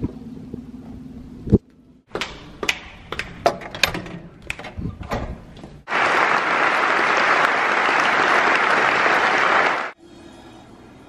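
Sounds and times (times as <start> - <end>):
audience applause: 5.9 - 10.0.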